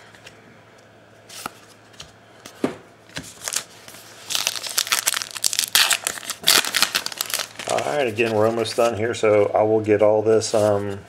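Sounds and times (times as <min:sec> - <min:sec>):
foil wrapper crinkling: 0:03.3 - 0:08.9.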